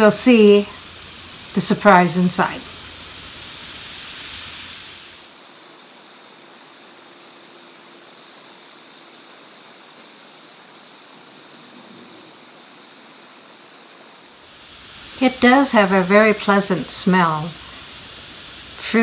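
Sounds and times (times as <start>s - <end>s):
bath bomb fizzing: 0.0s - 5.3s, 14.4s - 19.0s.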